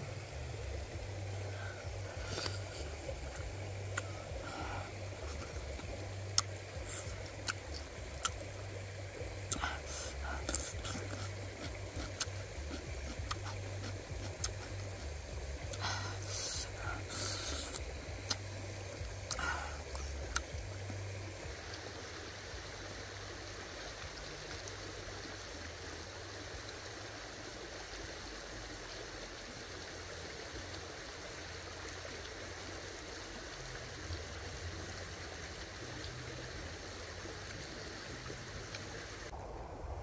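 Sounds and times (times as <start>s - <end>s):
faint ticks: 1.6s - 8.6s, 9.4s - 21.8s.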